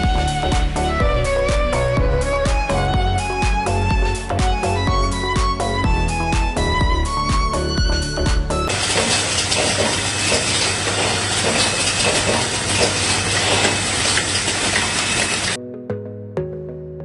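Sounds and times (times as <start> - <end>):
capping machine hiss and clatter: 8.7 - 15.6.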